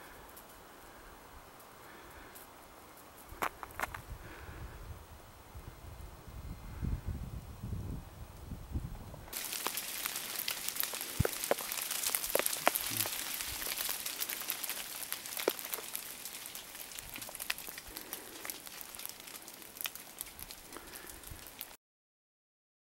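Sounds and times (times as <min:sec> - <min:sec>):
pattering of falling drops: 0:09.3 - 0:21.8.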